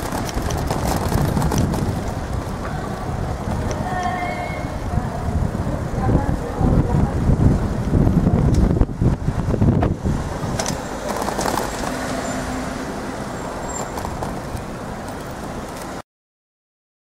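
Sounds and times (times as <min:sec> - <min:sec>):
camera rattling and clunking: 0:00.0 - 0:02.6, 0:09.4 - 0:12.2, 0:13.6 - 0:16.0
street and traffic noise: 0:00.0 - 0:16.0.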